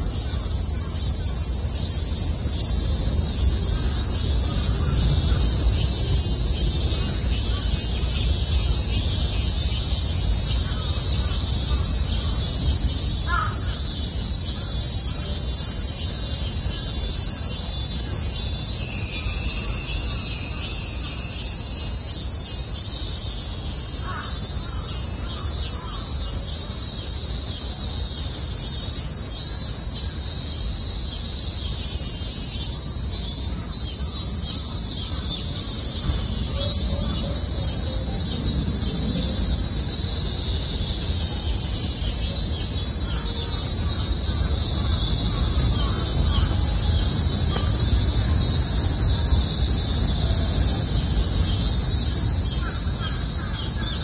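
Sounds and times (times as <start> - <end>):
cicadas chorus: 0.0 - 54.0
pulsing cicada call: 0.0 - 54.0
crow cawing: 10.6 - 14.0, 24.0 - 24.4, 52.5 - 54.0.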